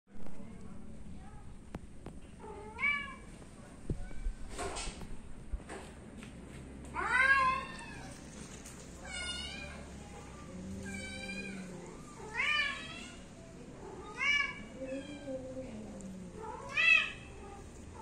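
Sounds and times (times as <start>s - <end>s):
cat meowing: 7.0s - 8.2s, 13.9s - 15.4s, 16.4s - 18.0s.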